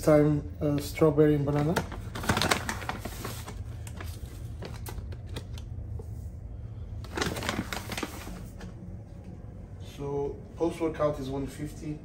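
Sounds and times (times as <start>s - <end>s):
low steady hum: 0.0s - 12.0s
bag crinkling: 1.4s - 5.5s, 7.0s - 8.6s.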